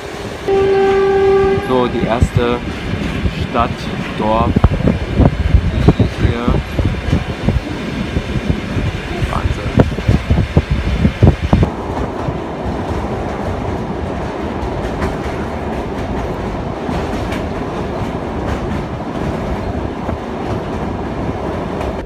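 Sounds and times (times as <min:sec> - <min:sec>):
train rumbling on rails: 0:00.0 - 0:22.0
train wheel knocks: 0:12.9 - 0:22.0.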